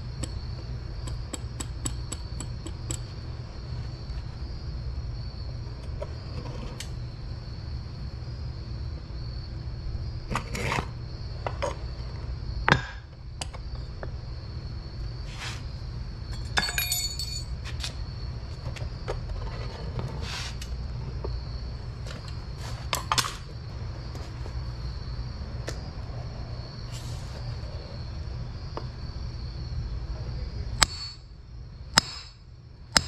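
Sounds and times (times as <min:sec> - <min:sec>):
steady low rumble: 0:10.9 - 0:33.0
metal tongs clinking and knocking: 0:16.5 - 0:17.5.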